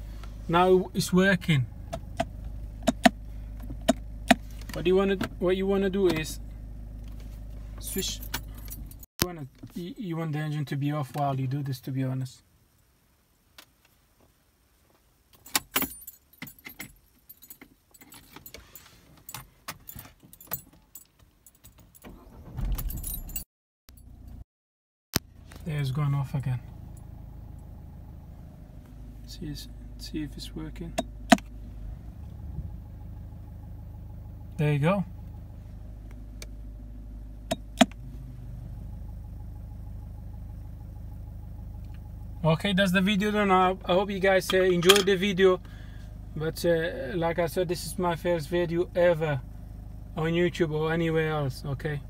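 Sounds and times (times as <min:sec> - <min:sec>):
parking brake switch clicks: 0:01.9 - 0:05.4, 0:37.4 - 0:38.1
car keys jangling: 0:07.8 - 0:09.1, 0:15.3 - 0:23.4
low hum: 0:25.2 - 0:51.1.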